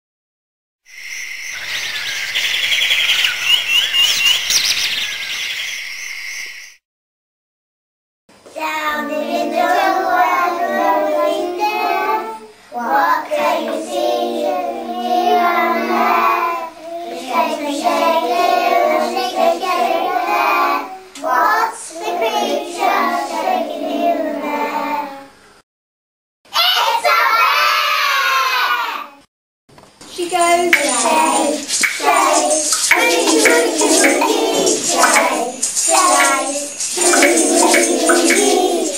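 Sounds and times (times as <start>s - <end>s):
high chirping: 0.9s - 6.8s, 30.1s - 38.9s
children singing: 8.5s - 25.3s, 30.4s - 38.9s.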